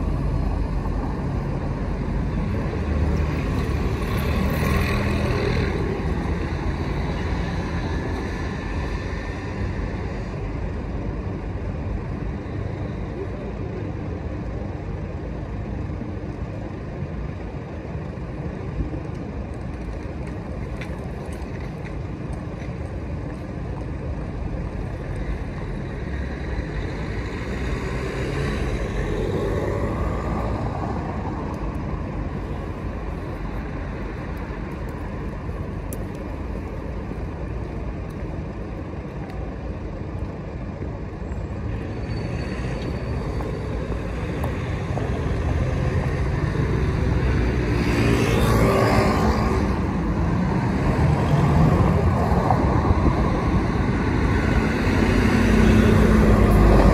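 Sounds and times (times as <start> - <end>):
traffic rumble: 0.0 - 56.9
vehicle passing by: 44.6 - 56.9.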